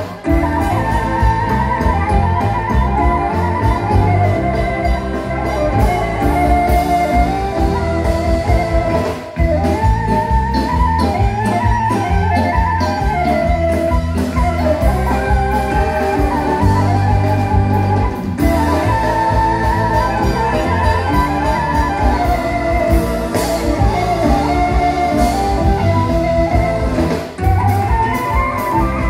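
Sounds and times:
accordion: 0.0s - 29.0s
clarinet: 0.0s - 29.0s.

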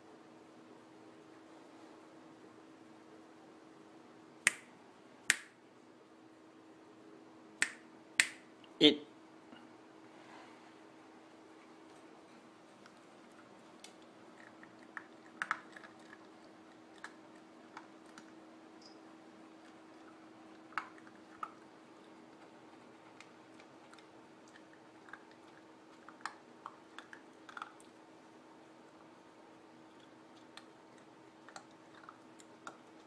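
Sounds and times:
low steady hum: 0.0s - 33.0s
puppy crunching kibble: 12.6s - 33.0s.

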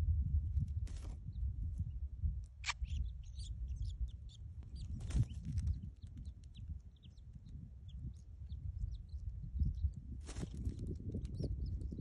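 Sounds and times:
nestlings chirping: 2.5s - 11.8s.

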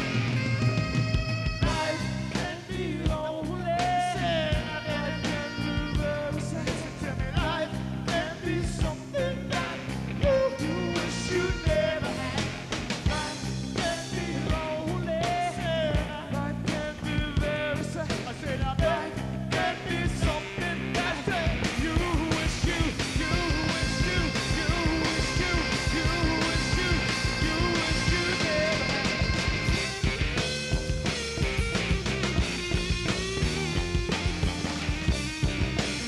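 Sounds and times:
bass guitar: 0.0s - 36.0s
drums: 0.0s - 36.0s
electric guitar: 0.0s - 36.0s
person singing: 1.6s - 18.1s, 18.8s - 29.5s.

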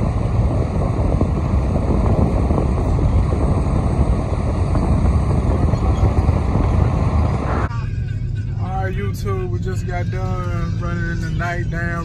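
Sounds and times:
wind buffeting microphone: 0.0s - 7.7s.

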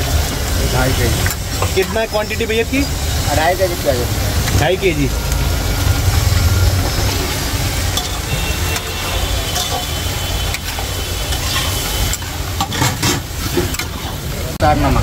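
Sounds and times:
onions sizzling in oil: 0.0s - 14.8s
low rumble: 4.1s - 9.0s.

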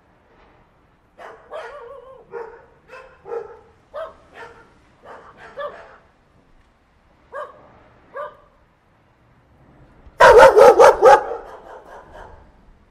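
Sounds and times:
small dog barking: 1.2s - 6.1s, 7.3s - 8.6s, 10.2s - 12.4s.

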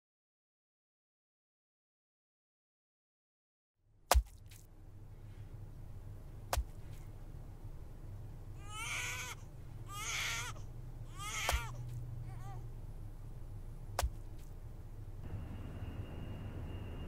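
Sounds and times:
low hum: 3.9s - 10.0s, 10.6s - 17.0s
short crying wails: 8.6s - 12.7s.

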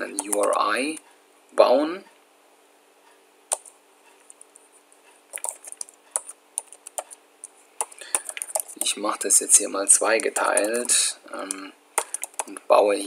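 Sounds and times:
keyboard key clicks: 12.0s - 12.5s.

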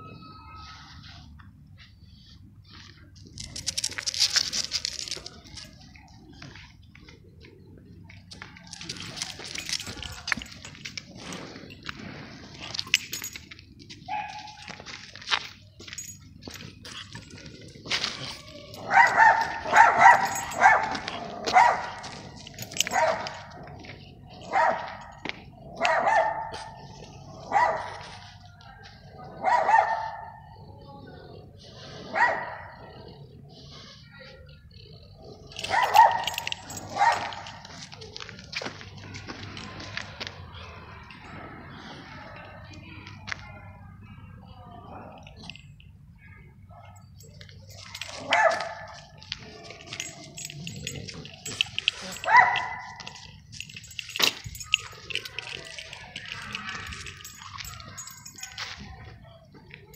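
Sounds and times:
dog tags jingling and clicking: 3.1s - 30.6s, 34.4s - 43.5s, 44.8s - 59.9s
dog barking in high yips: 18.8s - 22.2s, 22.8s - 23.5s, 25.8s - 26.8s, 27.5s - 28.2s, 29.4s - 30.4s, 35.6s - 37.6s, 51.9s - 53.2s.

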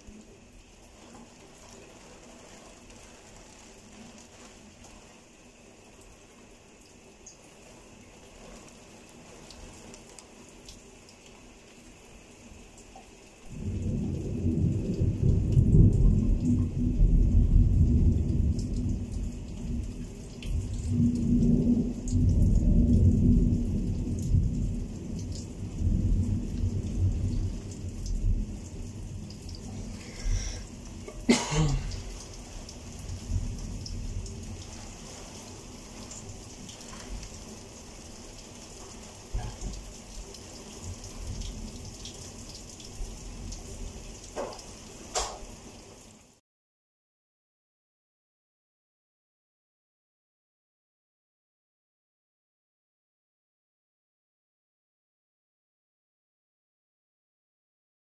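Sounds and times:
rain falling: 0.0s - 46.4s
deep rumble of thunder: 13.5s - 31.1s, 31.7s - 40.0s.

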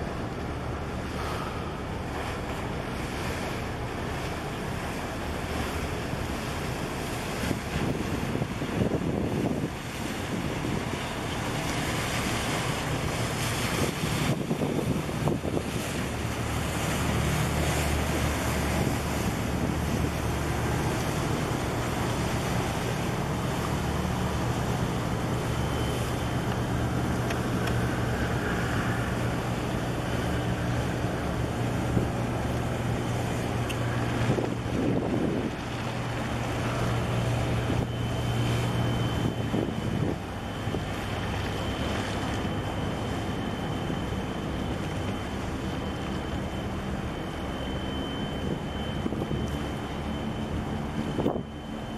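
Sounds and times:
choppy water: 0.0s - 51.9s
low ship engine drone: 0.0s - 51.9s
wind buffeting microphone: 6.5s - 25.5s, 26.7s - 41.7s.

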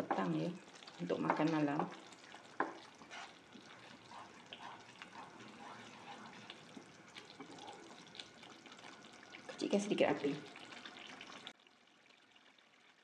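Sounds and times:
wooden spatula stirring: 0.0s - 9.6s
small pops and spatters: 0.0s - 9.7s
chili paste bubbling: 0.0s - 13.0s.

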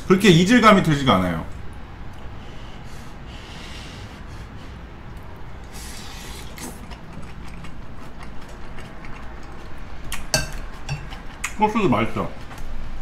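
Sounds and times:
chewing with crunching: 4.8s - 13.0s.

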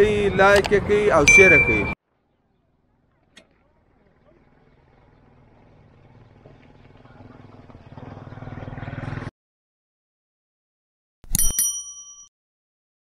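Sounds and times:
rumbling engine-like noise: 0.0s - 9.3s
bright chime ringing: 1.3s - 2.0s.

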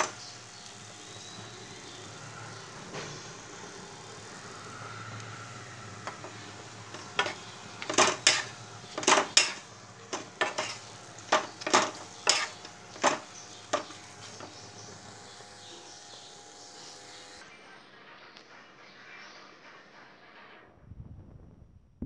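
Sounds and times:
metal spatula scraping a pan: 6.0s - 14.5s.

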